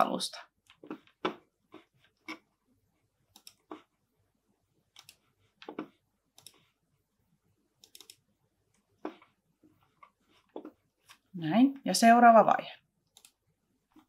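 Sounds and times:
computer mouse clicking: 3.3 - 3.9, 4.9 - 6.7, 7.8 - 9.2, 13.1 - 13.4.

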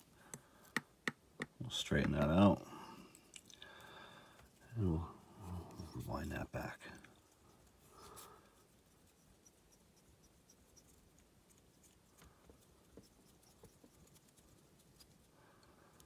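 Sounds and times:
thread ticks and scratches: 5.4 - 15.3.

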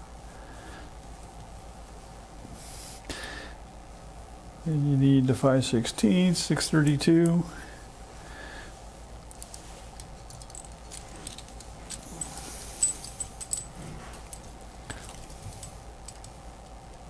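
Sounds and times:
small metal parts clinking: 9.3 - 16.8.

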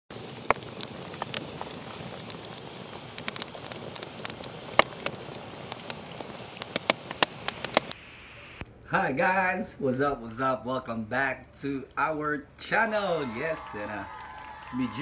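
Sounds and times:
fire crackling and popping: 0.1 - 8.7, 12.7 - 15.0.

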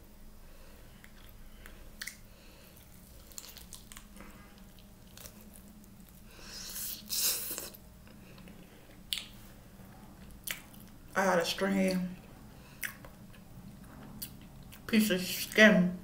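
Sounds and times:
mouth clicks while chewing: 1.0 - 2.2, 9.1 - 9.4, 12.8 - 13.2.

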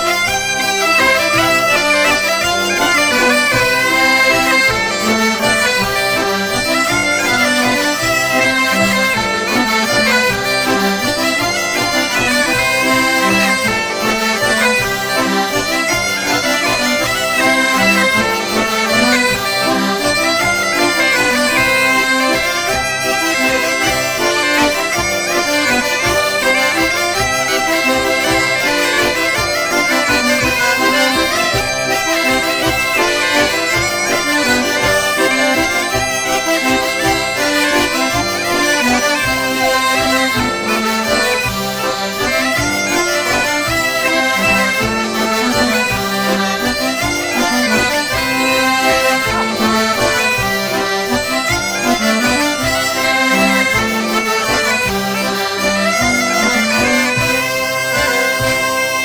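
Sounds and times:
lively folk melody: 0.0 - 59.0.

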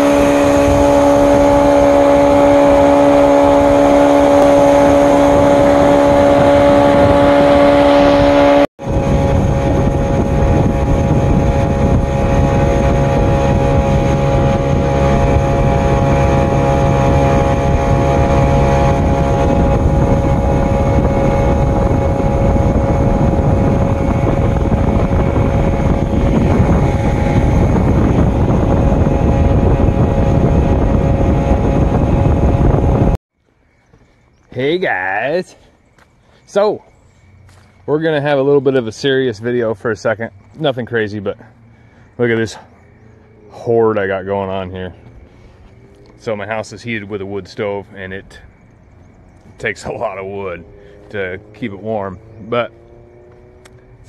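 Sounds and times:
outboard motor running: 0.0 - 33.2, 42.8 - 54.0.

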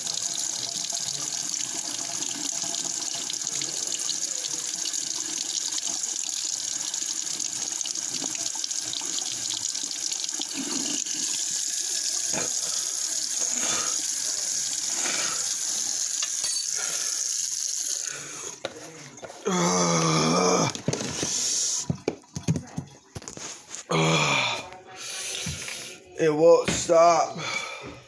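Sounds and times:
faucet running into sink: 0.0 - 19.4, 20.6 - 23.4.

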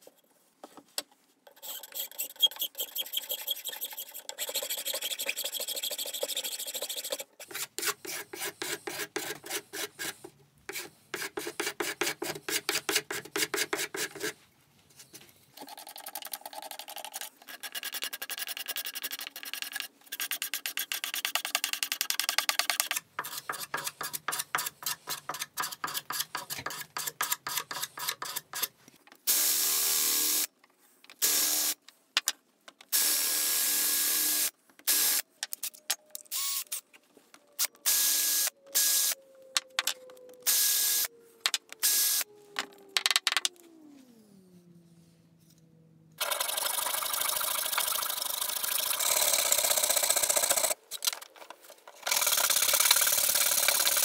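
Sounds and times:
file rasping on wood: 1.6 - 14.4, 23.2 - 28.7.

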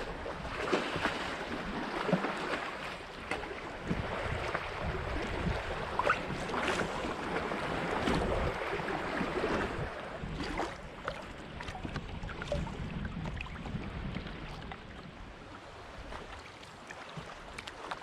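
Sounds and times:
wind rumble on microphone: 0.0 - 2.3, 3.0 - 16.6
paddle splashes: 0.0 - 18.0
water sloshing around kayak hull: 0.0 - 18.0.

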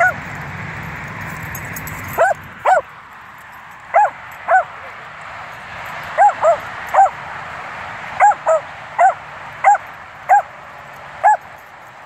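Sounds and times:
small dog yipping: 0.0 - 0.2, 2.1 - 2.9, 3.9 - 4.9, 6.2 - 7.2, 8.2 - 10.5, 11.2 - 11.5.

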